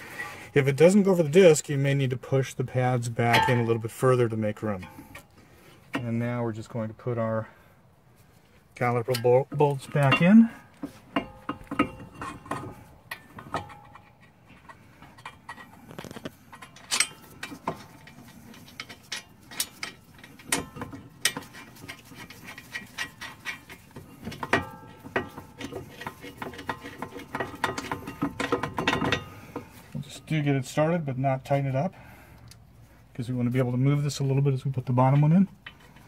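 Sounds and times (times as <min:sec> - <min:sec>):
wrench and bolt clinking: 0:09.0 - 0:29.7.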